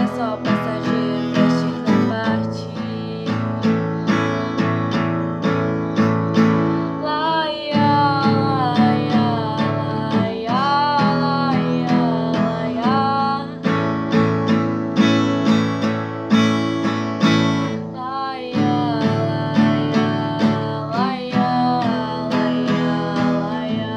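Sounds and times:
woman singing: 0:00.0 - 0:04.6, 0:06.9 - 0:14.4, 0:17.3 - 0:23.9
strummed acoustic guitar: 0:00.0 - 0:23.9.

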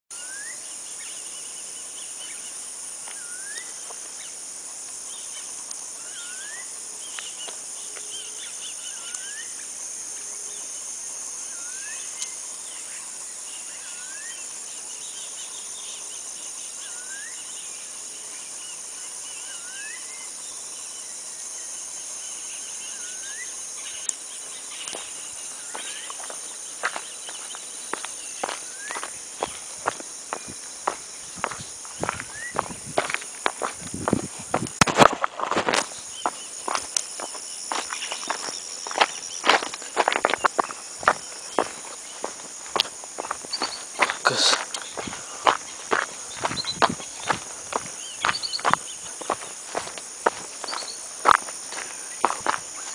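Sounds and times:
high-pitched insect drone: 0:00.1 - 0:52.9
footsteps on loose stones: 0:24.9 - 0:52.9.

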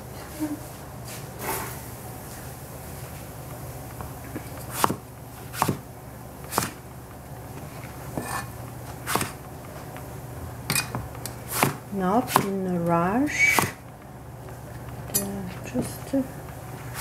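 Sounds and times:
cleaver chopping on cutting board: 0:04.7 - 0:05.8, 0:06.5 - 0:06.8, 0:09.1 - 0:09.4, 0:10.7 - 0:12.6, 0:13.5 - 0:13.8.

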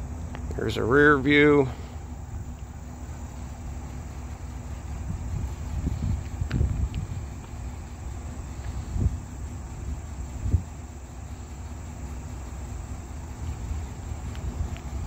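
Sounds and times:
wind rumble on microphone: 0:05.0 - 0:07.8, 0:08.5 - 0:10.8, 0:13.5 - 0:15.0.

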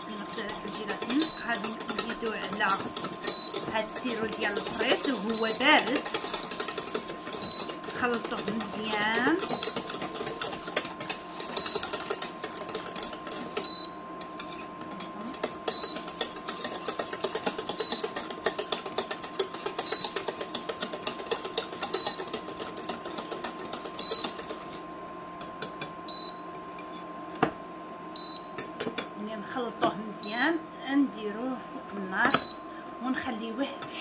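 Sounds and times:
whisk rattling against saucepan: 0:00.0 - 0:24.8, 0:28.6 - 0:29.1.

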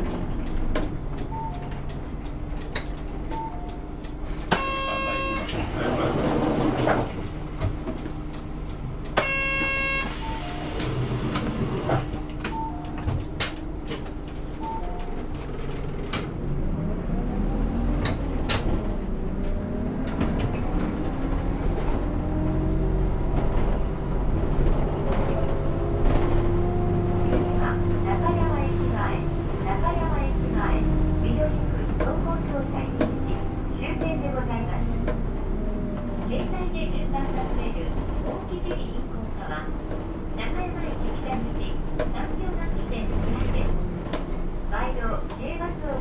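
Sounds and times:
bus diesel engine: 0:00.0 - 0:46.0
short beeps: 0:04.5 - 0:05.6, 0:09.2 - 0:10.7.

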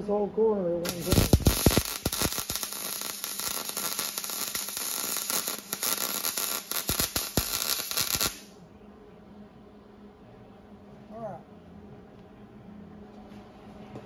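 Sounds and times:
electric arc welding crackle: 0:00.8 - 0:08.5.

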